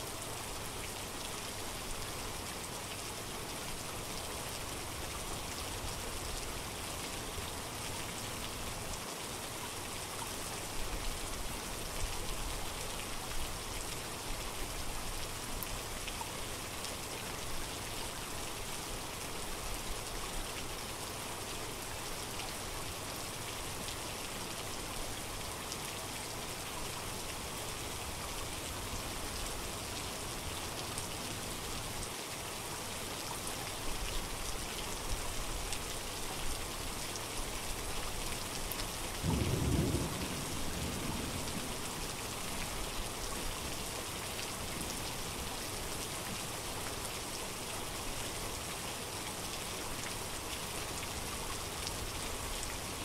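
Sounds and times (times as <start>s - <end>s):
steady rain falling: 0.0s - 53.0s
thunder rumbling: 39.3s - 41.9s.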